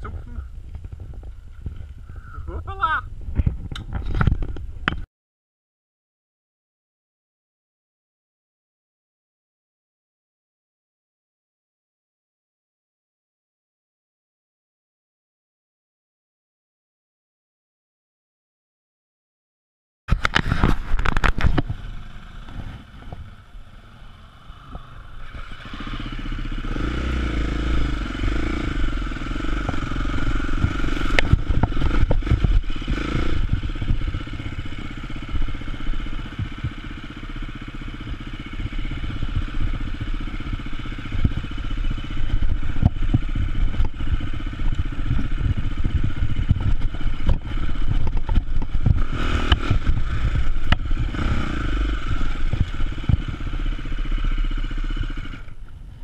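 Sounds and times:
motorcycle engine running: 0.0s - 2.4s, 20.1s - 56.0s
knocks and rattles over stones: 20.1s - 21.8s.

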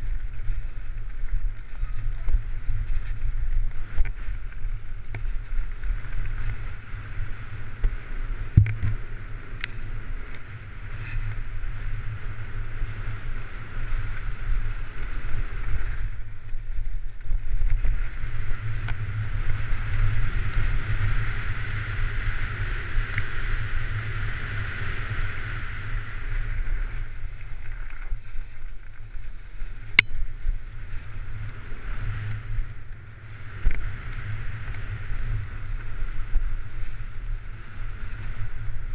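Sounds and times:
wind buffeting on microphone: 0.0s - 38.9s
sharp knocks from rough track: 7.8s - 9.0s.

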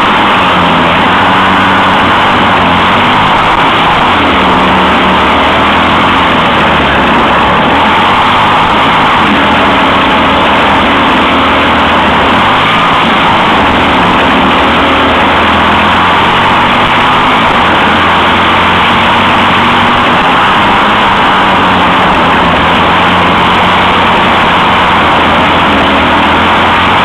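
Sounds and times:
kart engine droning: 0.0s - 27.0s.

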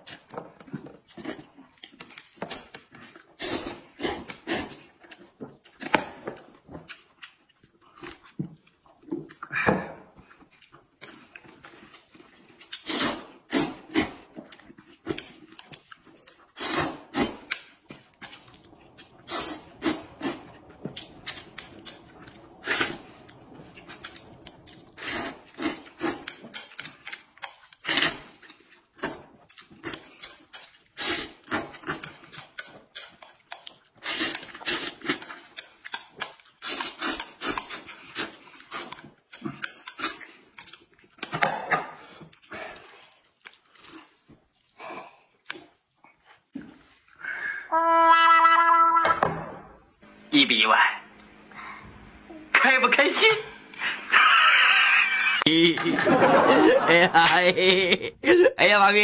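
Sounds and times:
people slurping noodles: 3.4s - 4.9s, 12.7s - 14.3s, 16.4s - 26.8s, 30.9s - 32.2s, 34.0s - 35.3s, 53.6s - 58.3s.

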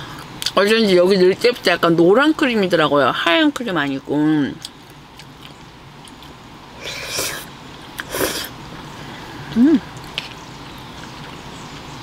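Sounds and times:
chewing: 4.6s - 8.5s, 9.4s - 11.9s
person slurping noodles: 6.8s - 8.5s
person humming mm: 9.5s - 10.0s.

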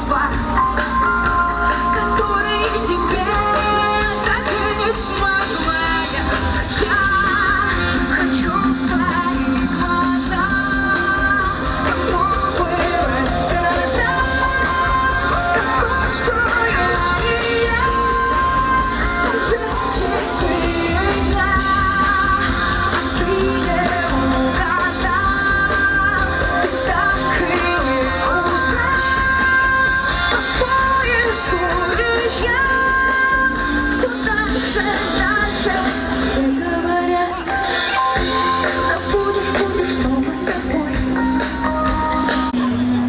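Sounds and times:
woman singing: 0.0s - 42.7s
pop-rock band playing: 0.0s - 43.0s.

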